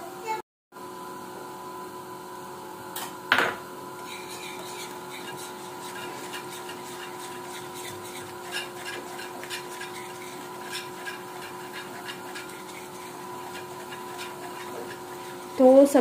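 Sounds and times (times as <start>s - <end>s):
whisk scraping plastic bowl: 4.0s - 16.0s.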